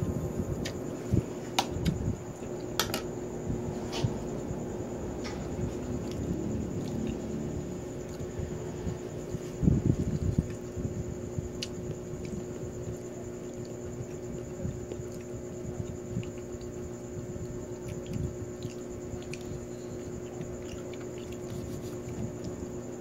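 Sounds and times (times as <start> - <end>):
steady mechanical hum: 0.0 - 23.0
person chewing: 17.8 - 22.6.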